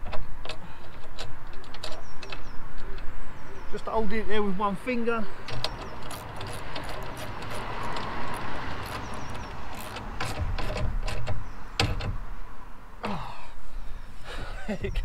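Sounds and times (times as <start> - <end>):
metallic clicks and scrapes of nut: 0.0 - 3.1, 5.4 - 12.2.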